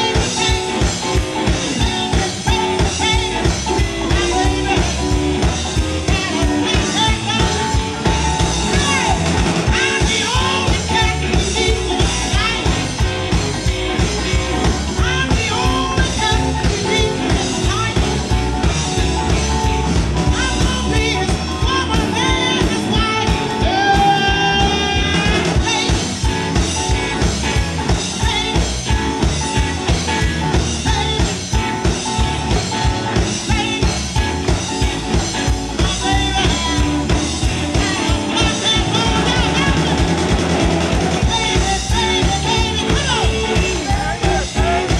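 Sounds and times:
drum kit beat: 0:00.0 - 0:44.9
electric guitars: 0:00.0 - 0:44.9
woman singing: 0:01.7 - 0:13.4, 0:14.0 - 0:18.7, 0:20.2 - 0:26.5, 0:28.1 - 0:29.2, 0:30.8 - 0:32.0, 0:33.3 - 0:34.9, 0:35.8 - 0:40.2, 0:41.2 - 0:44.9.

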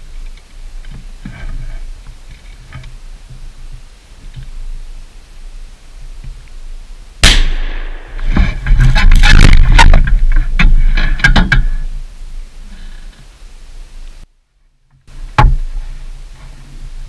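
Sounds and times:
gunshot at close range: 0:07.2 - 0:08.6
loud rustling and clattering: 0:08.2 - 0:11.9.

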